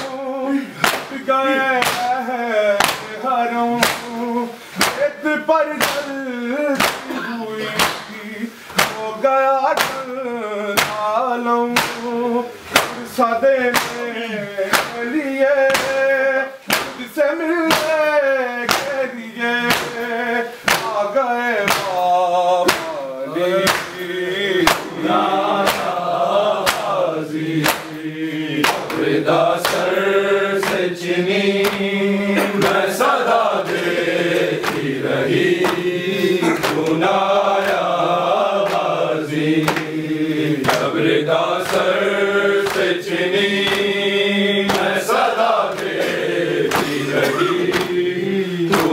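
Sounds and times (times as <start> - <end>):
men chanting together: 0.0 - 48.9
hands beating chests: 0.8 - 3.2, 3.8 - 4.2, 4.8 - 5.1, 5.8 - 9.1, 9.7 - 10.2, 10.8 - 11.1, 11.8 - 12.1, 12.7 - 13.1, 13.7 - 16.1, 16.7 - 18.1, 18.7 - 19.0, 19.6 - 26.0, 26.6 - 27.0, 27.6 - 28.0, 28.6 - 30.0, 31.6 - 38.0, 38.6 - 40.0, 40.6 - 44.0, 44.6 - 48.1, 48.7 - 48.9.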